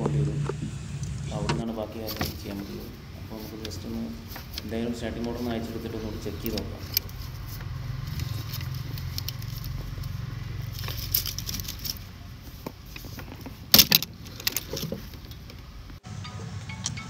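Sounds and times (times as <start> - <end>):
low steady hum: 0.0 - 17.0
metal hand tools clinking: 8.1 - 12.2.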